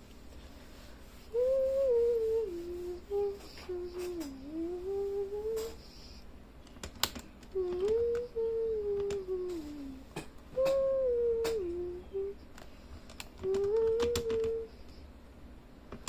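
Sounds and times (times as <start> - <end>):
person humming: 1.2 - 6.2, 7.5 - 12.5, 13.4 - 15.1.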